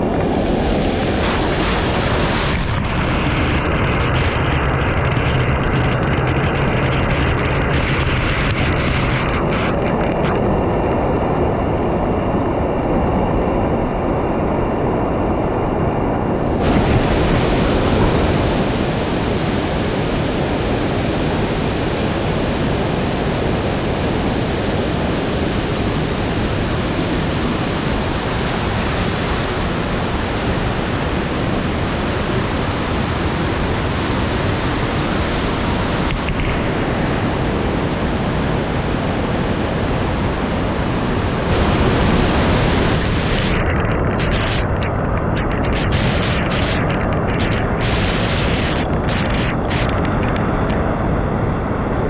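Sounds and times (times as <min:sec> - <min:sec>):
waterfall roaring: 0:00.0 - 0:04.3, 0:16.3 - 0:51.9.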